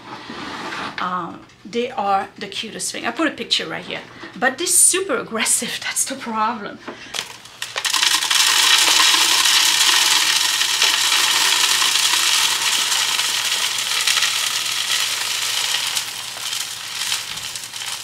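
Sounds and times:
seeds pouring into plastic hopper: 7.2s - 18.0s.

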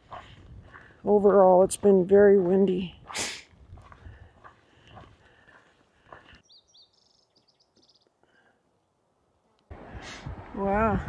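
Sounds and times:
footsteps on dirt trail: 0.0s - 8.1s
bird chirping: 6.3s - 8.2s.

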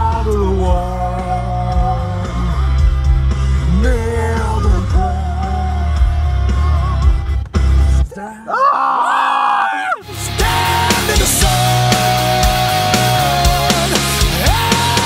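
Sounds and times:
loud rock music: 0.0s - 8.1s, 10.0s - 15.0s
person singing long notes: 10.0s - 15.0s.

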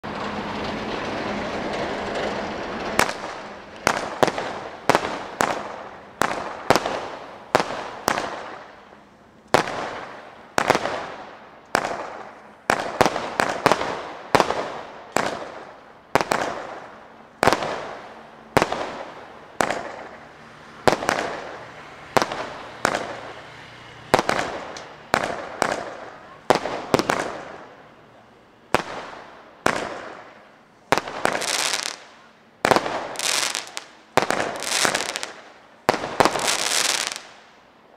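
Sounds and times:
firework bangs: 0.0s - 37.9s
firework hissing: 28.7s - 37.5s.

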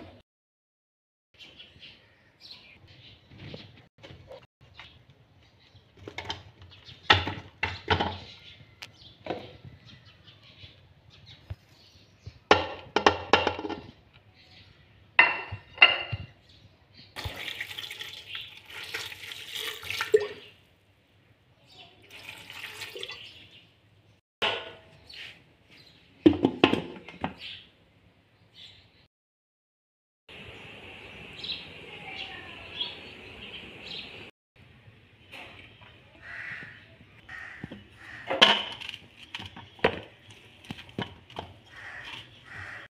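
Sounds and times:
liquid being poured: 17.2s - 20.6s, 22.1s - 23.3s.

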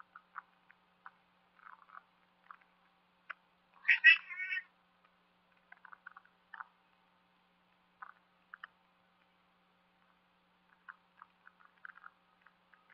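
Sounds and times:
cat meowing: 3.8s - 4.7s.

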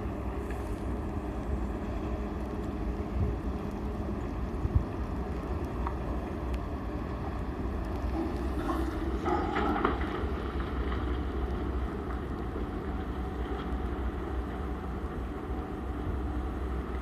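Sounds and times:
excavator machinery hum: 0.0s - 17.0s
wind on microphone: 4.2s - 5.2s.

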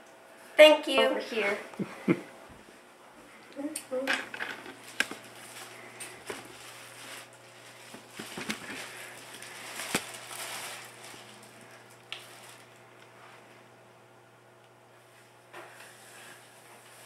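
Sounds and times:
plastic wrapping crinkling: 4.4s - 13.1s.

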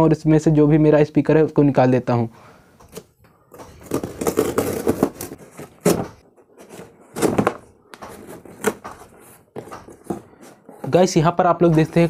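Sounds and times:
tape and cardboard rustling: 2.9s - 11.1s
knife cutting packing tape: 3.8s - 6.0s.

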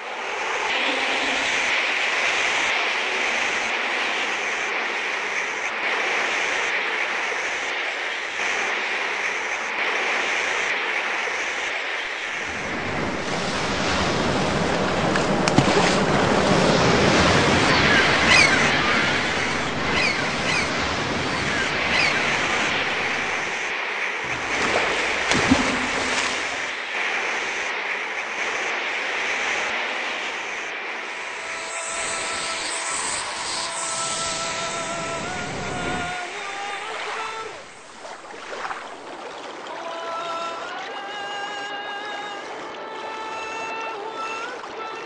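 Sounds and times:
waves rushing in: 0.0s - 45.0s
windy hiss: 0.0s - 45.0s
high whistling chirps: 17.8s - 20.8s, 21.4s - 23.5s.

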